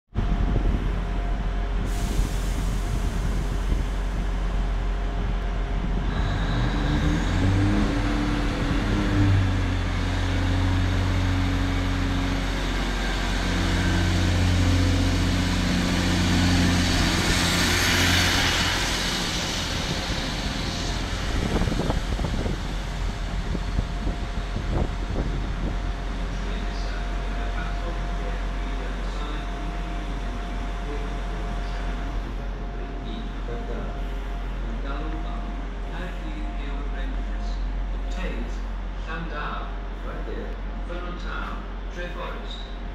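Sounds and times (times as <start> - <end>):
diesel train engine: 0.1 - 42.9
rushing hiss of passing train: 1.7 - 33.0.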